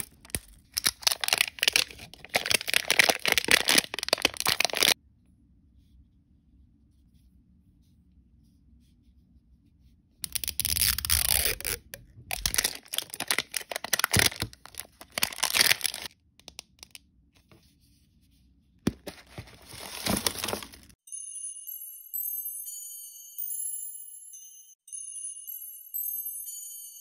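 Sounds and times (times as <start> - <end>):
plastic wrapper crinkling: 0.0 - 5.0, 10.2 - 16.1, 18.9 - 21.0
twinkling chime tune: 21.0 - 27.0.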